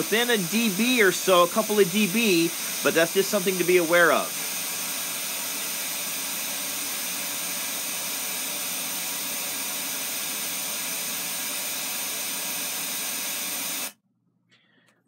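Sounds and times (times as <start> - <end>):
broadband hiss from loudspeaker: 0.0 - 4.6.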